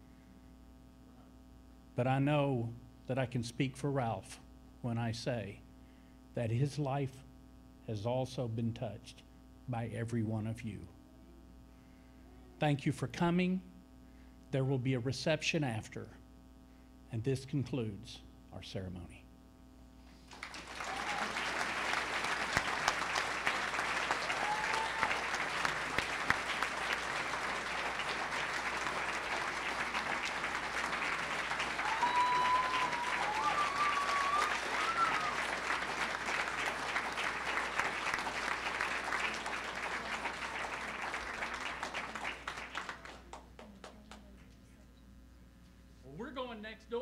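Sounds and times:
audience applauding: 20.2 - 44.0
cries from audience: 20.6 - 21.8, 24.0 - 26.4, 30.9 - 35.7.

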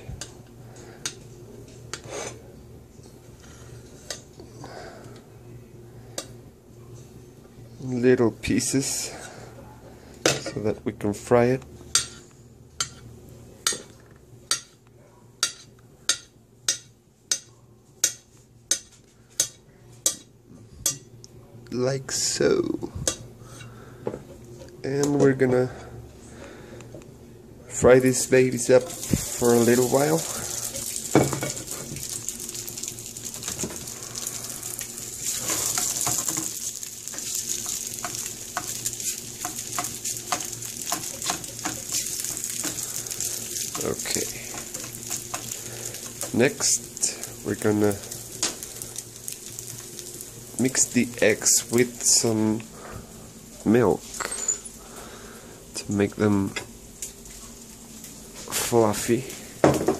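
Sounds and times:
sausage sizzling in a frying pan: 28.0 - 55.9
spatula scraping a pan: 34.7 - 46.3.

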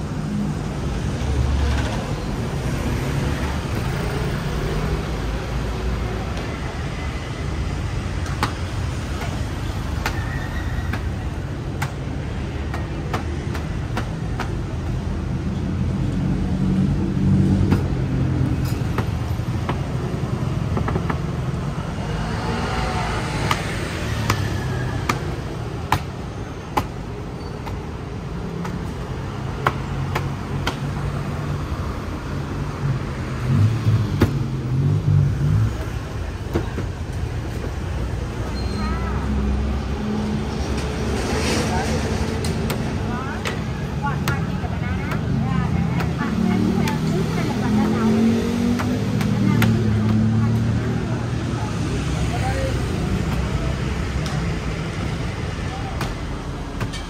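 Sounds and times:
street traffic rumble: 0.0 - 57.0
vehicle passing by: 39.2 - 55.9.

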